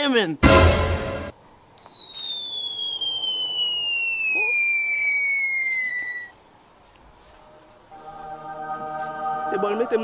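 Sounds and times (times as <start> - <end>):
falling whistle: 1.8 - 6.4.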